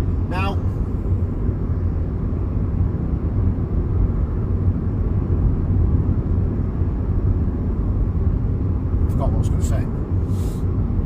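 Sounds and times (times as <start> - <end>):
car interior road and engine rumble: 0.0 - 11.0.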